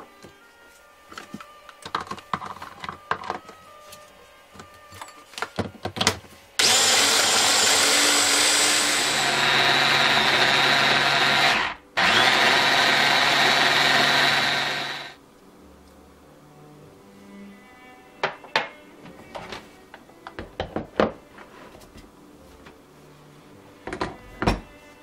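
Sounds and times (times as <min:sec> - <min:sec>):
mini chopper motor whine: 0:06.6 - 0:15.2.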